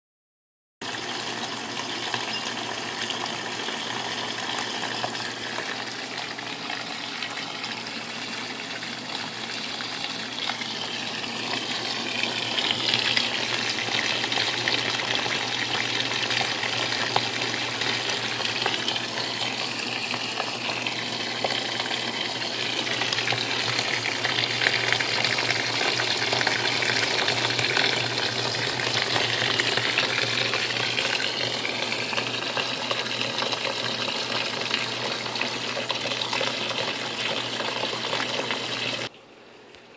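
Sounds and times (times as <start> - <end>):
water gushing into drum: 0.8 - 39.1.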